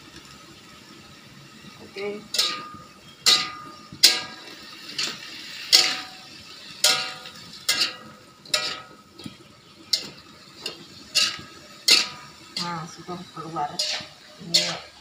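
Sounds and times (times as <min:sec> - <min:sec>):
metal utensil clanking in a wok: 0:02.2 - 0:15.0.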